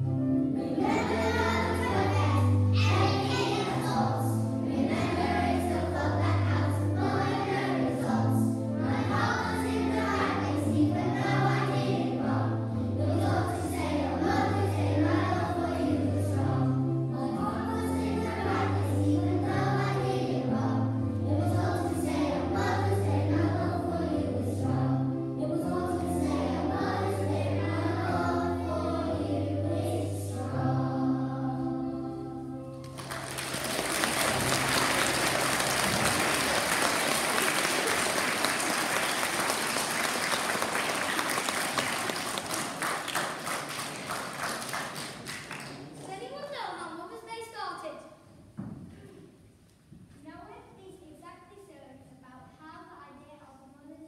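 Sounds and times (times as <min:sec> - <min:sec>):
children singing in unison: 0:00.6 - 0:32.4.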